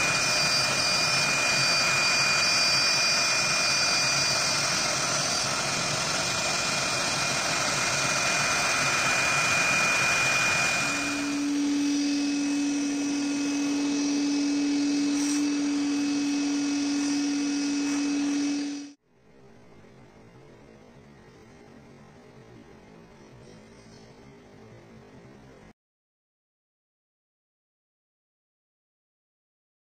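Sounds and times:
router spindle whining: 0:00.0 - 0:19.0
shop vacuum drone: 0:00.0 - 0:25.7.

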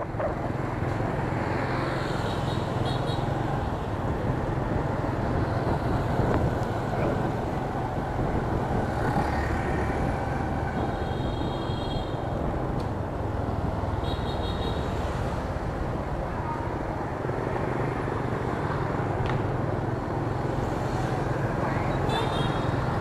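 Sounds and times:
wind noise: 0:04.1 - 0:10.2.

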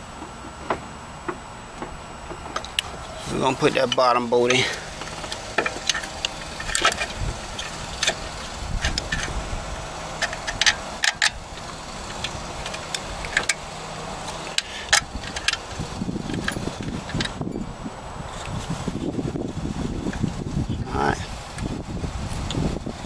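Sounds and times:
metal tools clinking on bracket: 0:03.5 - 0:09.4.

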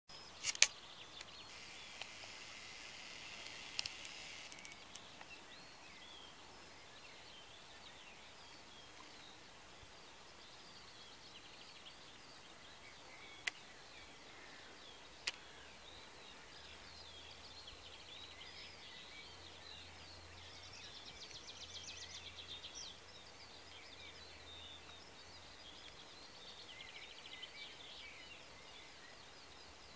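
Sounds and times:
birds chirping and warbling: 0:00.2 - 0:08.2
sharp clicks: 0:00.4 - 0:05.3.

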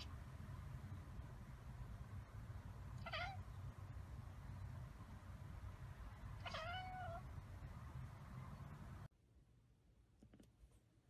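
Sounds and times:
faint low rumble: 0:00.0 - 0:11.0
cat meowing: 0:03.0 - 0:03.4, 0:06.4 - 0:07.3.

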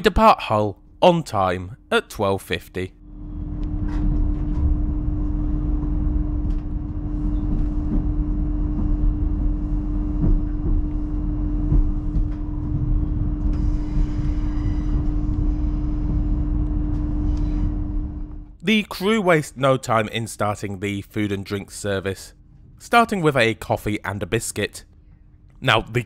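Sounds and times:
diesel engine low rumble: 0:02.9 - 0:18.6.

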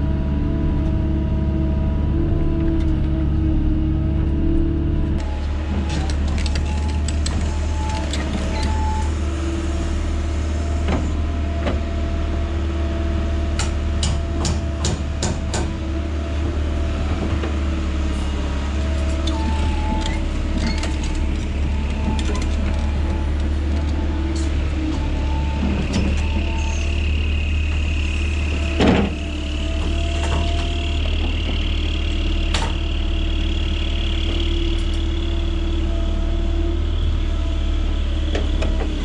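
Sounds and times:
excavator engine hum: 0:00.0 - 0:39.0
hydraulics whining: 0:05.1 - 0:11.9, 0:15.6 - 0:39.0.

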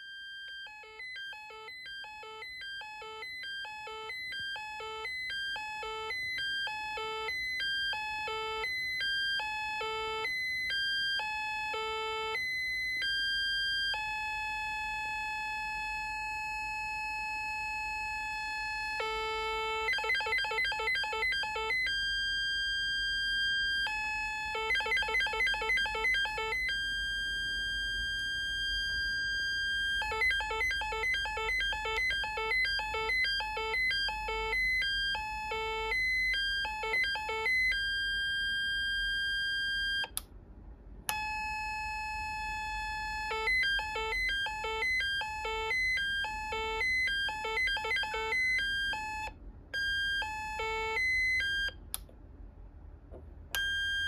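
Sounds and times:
electronic beeps: 0:24.4 - 0:37.9.

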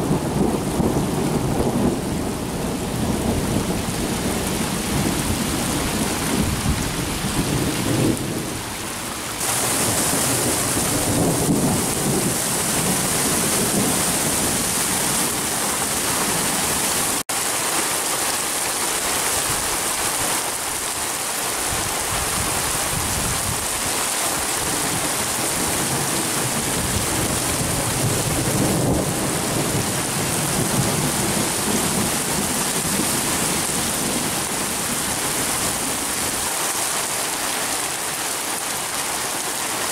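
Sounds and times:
rolling thunder: 0:00.0 - 0:08.6, 0:09.4 - 0:16.5, 0:25.0 - 0:35.0
steady rain falling: 0:00.0 - 0:39.9.

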